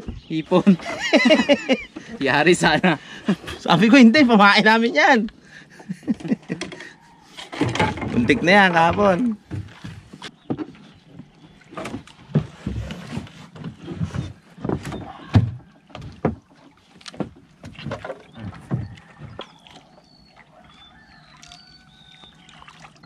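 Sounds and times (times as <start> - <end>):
paddles stroking through water: 0.0 - 23.0
water splashes: 0.0 - 23.0
canoe knocks: 6.0 - 20.8.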